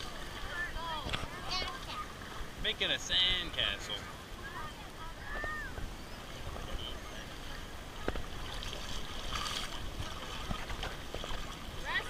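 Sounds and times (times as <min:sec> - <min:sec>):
lake water sloshing: 0:00.0 - 0:12.0
water splash: 0:08.0 - 0:12.0.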